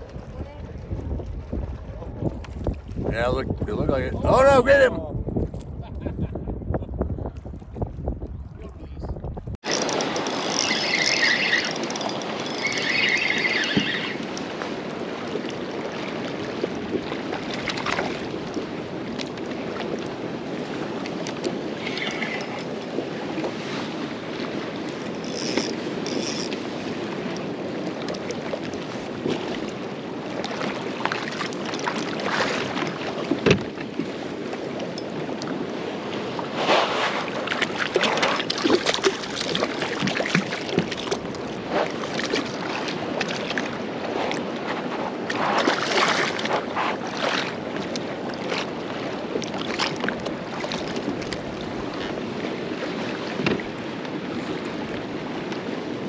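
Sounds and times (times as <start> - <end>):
water lapping against kayak hull: 0.0 - 4.6, 7.1 - 56.0
wind buffeting microphone: 0.0 - 13.3.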